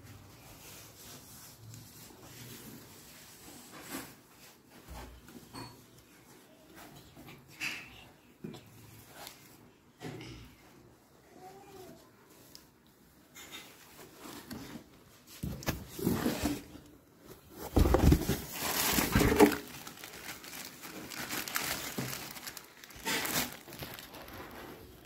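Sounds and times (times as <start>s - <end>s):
plastic bags crinkling: 17.4s - 25.0s.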